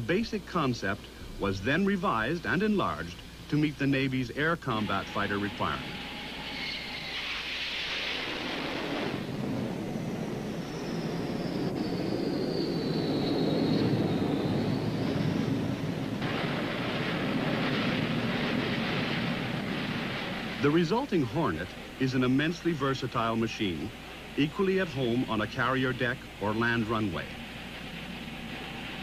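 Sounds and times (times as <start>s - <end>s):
high turbine whine: 0.0s - 29.0s
jet engine roar: 0.0s - 29.0s.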